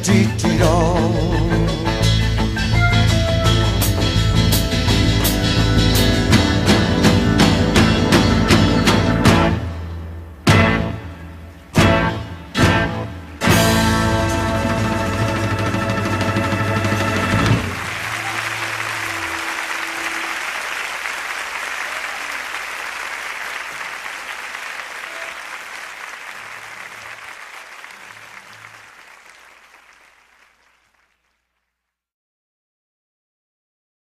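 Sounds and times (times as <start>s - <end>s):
audience applauding: 15.8s - 31.8s.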